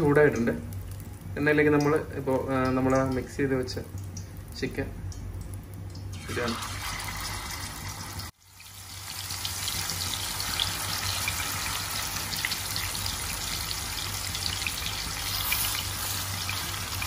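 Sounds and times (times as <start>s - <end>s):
chicken sizzling in hot oil: 6.1s - 17.0s.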